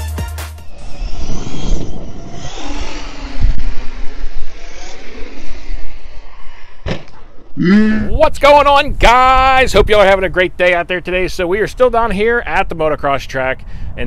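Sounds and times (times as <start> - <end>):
electronic music: 0.0 - 3.6
electric motor whining and revving: 0.6 - 7.6
wind noise on microphone: 0.6 - 14.0.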